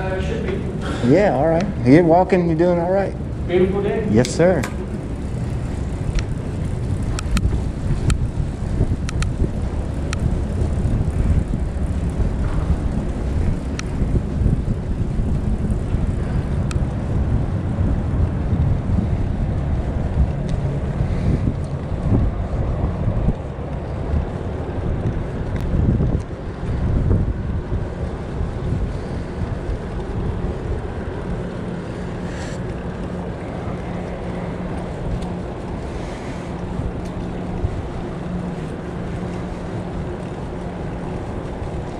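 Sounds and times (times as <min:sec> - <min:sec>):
wind buffeting microphone: 0:00.0 - 0:41.9.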